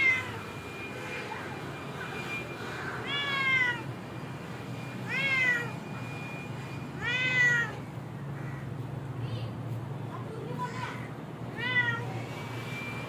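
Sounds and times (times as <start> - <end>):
cat meowing: 0.0 - 0.3, 3.0 - 3.9, 5.0 - 6.2, 7.0 - 7.8, 11.5 - 12.3.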